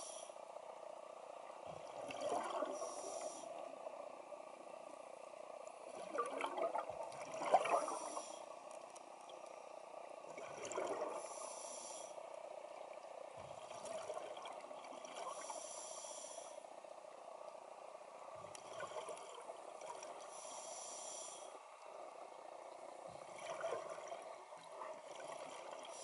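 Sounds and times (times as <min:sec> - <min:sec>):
regulator hiss: 0:00.0 - 0:00.5, 0:02.8 - 0:03.6, 0:11.2 - 0:12.2, 0:15.3 - 0:16.6, 0:20.3 - 0:21.5.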